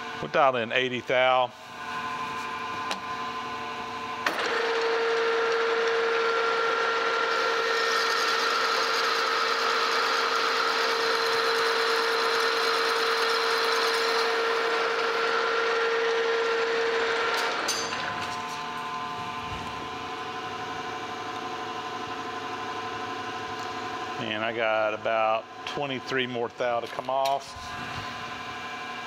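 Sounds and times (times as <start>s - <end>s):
lathe whine: 1.7s - 24.3s.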